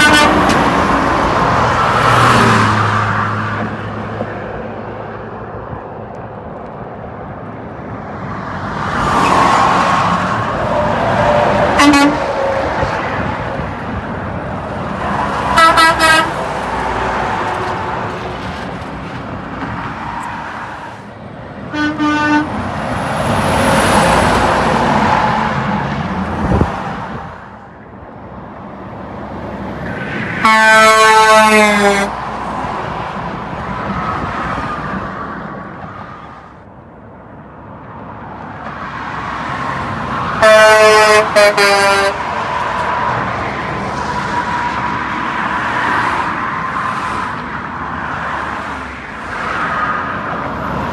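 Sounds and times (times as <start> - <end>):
truck air horn blasts: 0.0 - 0.5, 10.8 - 12.6, 15.5 - 16.5, 21.7 - 22.6, 30.4 - 32.2, 40.4 - 42.2
trucks passing at speed: 0.0 - 50.9.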